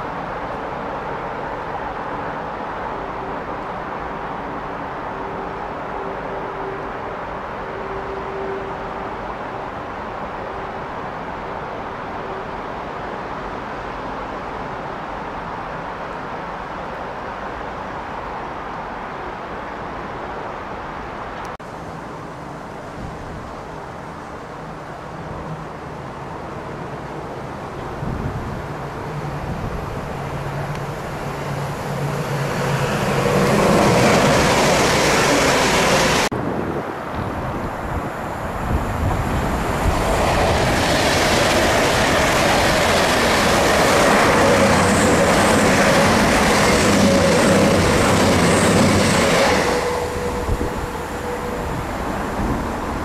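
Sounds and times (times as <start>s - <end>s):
train passing close by: 0.0s - 53.0s.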